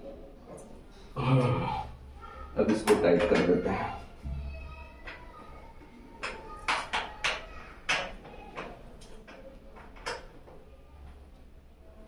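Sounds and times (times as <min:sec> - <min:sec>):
sharp clicks and knocks: 0:06.2 - 0:11.2.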